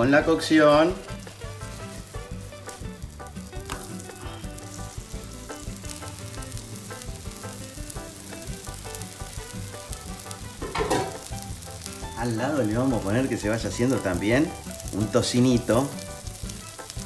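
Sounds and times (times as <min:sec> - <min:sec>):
light background music: 0:00.0 - 0:17.0
meat sizzling on a griddle: 0:00.0 - 0:17.0.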